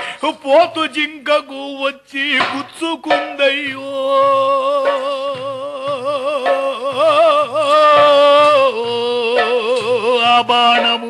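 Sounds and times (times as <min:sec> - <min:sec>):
soft drum beats: 0:00.0 - 0:11.0
man singing long note: 0:02.4 - 0:11.0.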